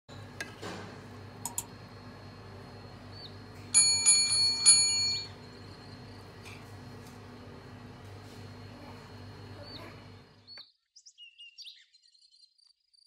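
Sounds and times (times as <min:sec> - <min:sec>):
small bell ringing: 0:03.7 - 0:05.4.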